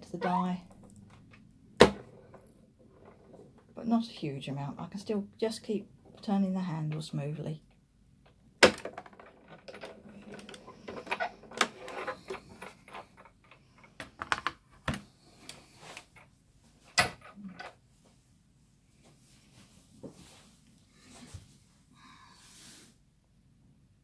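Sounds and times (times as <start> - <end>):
faint rustling: 15.0 - 23.0.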